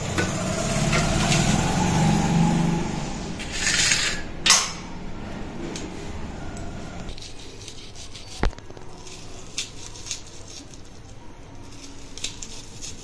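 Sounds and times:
knife slicing onion: 0:07.1 - 0:10.9.

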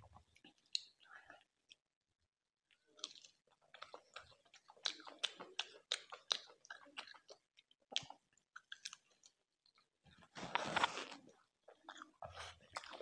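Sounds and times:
chewing and biting food: 0:02.7 - 0:13.0.

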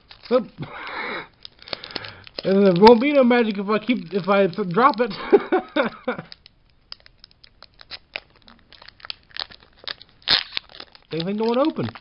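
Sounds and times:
foil wrapper crinkling: 0:00.0 - 0:12.0.

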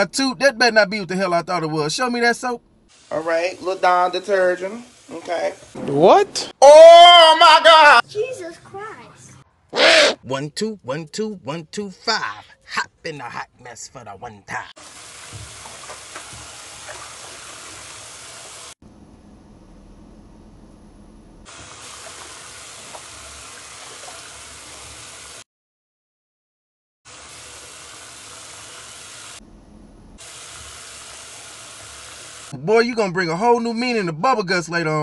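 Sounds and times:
tap water running into sink: 0:14.8 - 0:18.7, 0:21.5 - 0:25.4, 0:30.2 - 0:32.5.

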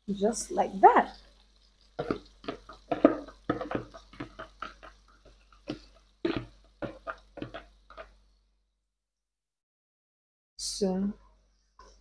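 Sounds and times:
spoon tapping in plastic bowl: 0:02.0 - 0:08.2
wet plops: 0:02.0 - 0:08.2.

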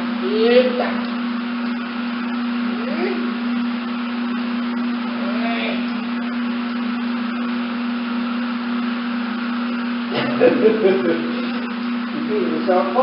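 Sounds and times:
mechanical hum: 0:00.0 - 0:13.0.

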